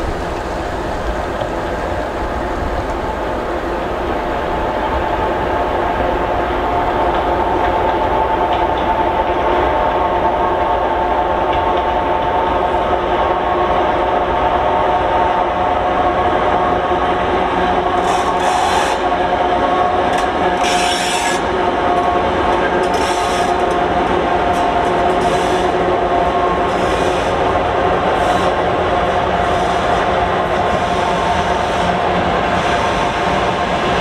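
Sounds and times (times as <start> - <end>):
diesel locomotive engines working: 0.0 - 34.0
wheels clattering over rail joints: 20.1 - 25.9.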